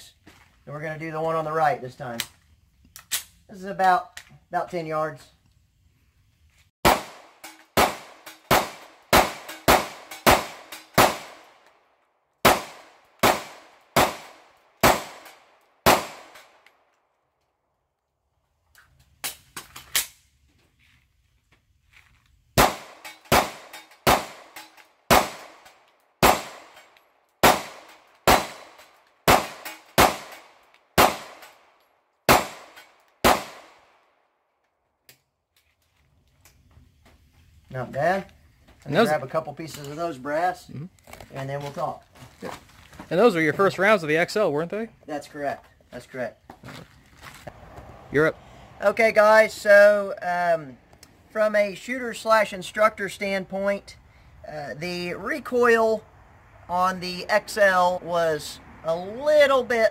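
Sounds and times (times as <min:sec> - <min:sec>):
pistol shots: 0:06.8 - 0:11.6, 0:12.4 - 0:16.6, 0:22.6 - 0:26.8, 0:27.4 - 0:31.7, 0:32.3 - 0:34.0.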